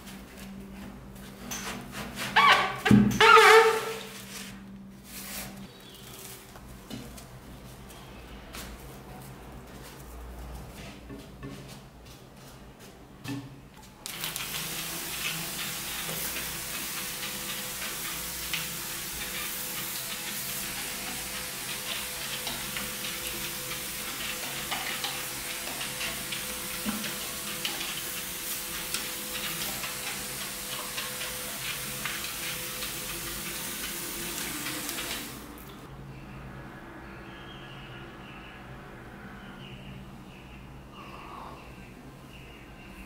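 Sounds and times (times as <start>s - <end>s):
sprayer misting liquid: 14.0s - 35.8s.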